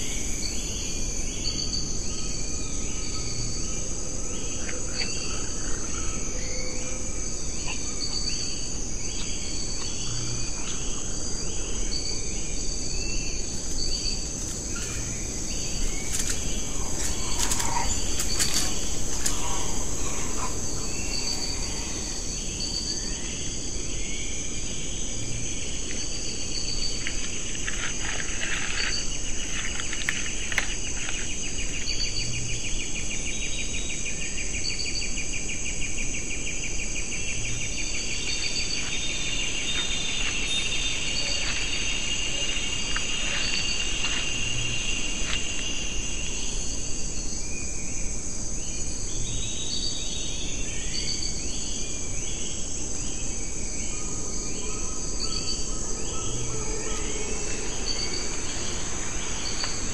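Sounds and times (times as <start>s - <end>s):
insects trilling: 0.0s - 59.9s
pulsing insect buzz: 13.5s - 24.2s
short chirping calls: 13.6s - 23.3s.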